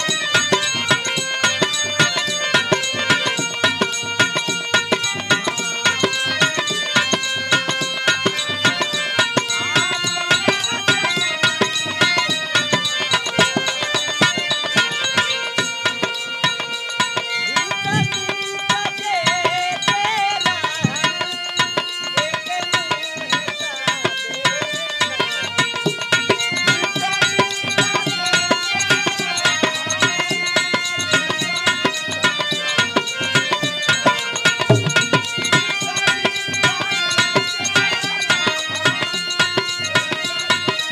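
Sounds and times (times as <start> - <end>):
harmonium held notes: 0.0 - 40.9.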